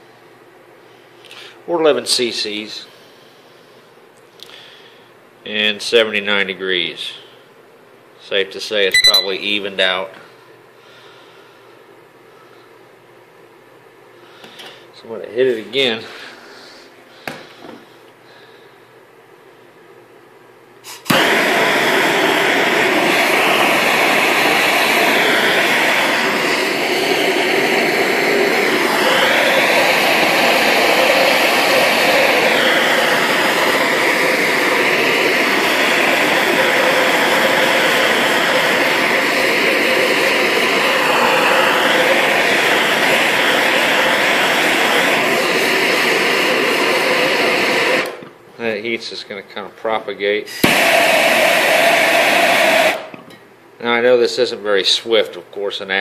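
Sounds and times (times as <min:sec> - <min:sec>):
gas torch hissing: 0:20.8 - 0:48.4, 0:50.5 - 0:53.4.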